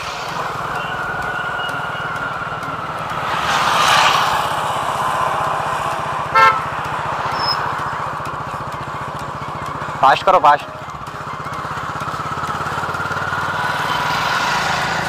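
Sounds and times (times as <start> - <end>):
passing vehicle: 0.0 - 15.0
vehicle engine running: 0.0 - 15.0
vehicle horn beep: 6.2 - 7.7.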